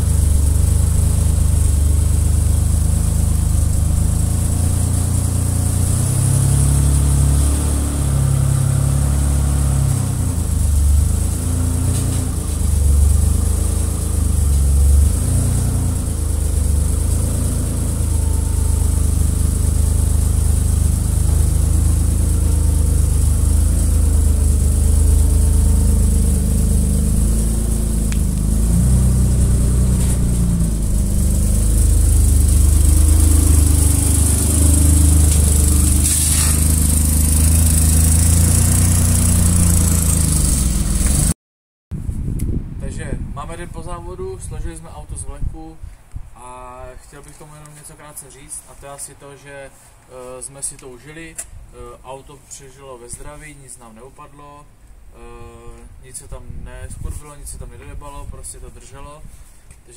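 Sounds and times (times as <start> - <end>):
race car engine revving: 0.0 - 41.4.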